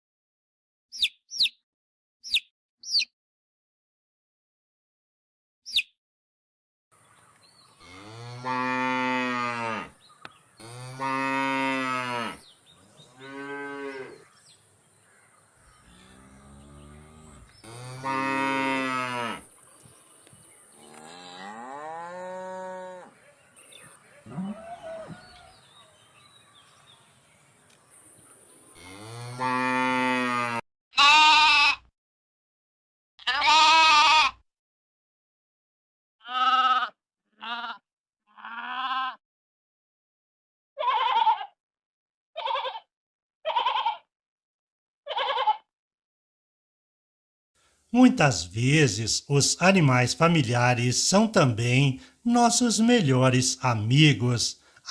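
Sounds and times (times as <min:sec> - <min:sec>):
cattle mooing: 0:07.8 - 0:09.9, 0:10.6 - 0:12.4, 0:13.2 - 0:14.2, 0:15.9 - 0:19.5, 0:20.8 - 0:23.2, 0:24.2 - 0:25.2, 0:28.8 - 0:31.3
sheep bleating: 0:28.8 - 0:31.9, 0:33.2 - 0:34.4, 0:36.2 - 0:39.2, 0:40.8 - 0:41.6, 0:42.4 - 0:42.9, 0:43.5 - 0:44.1, 0:45.1 - 0:45.7.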